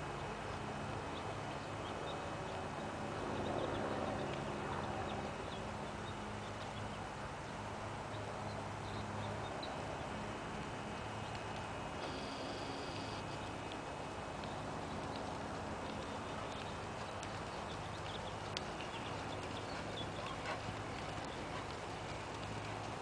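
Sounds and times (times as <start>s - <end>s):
steady low hum: 0.0s - 23.0s
horse hoofbeats on sand: 14.9s - 23.0s.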